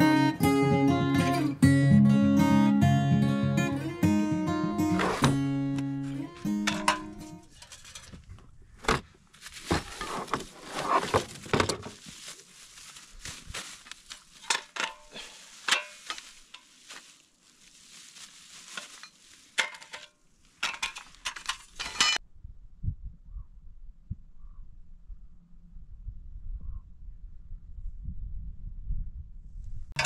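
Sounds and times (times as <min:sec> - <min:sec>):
clattering of handled objects: 0:06.0 - 0:17.2, 0:17.9 - 0:22.2.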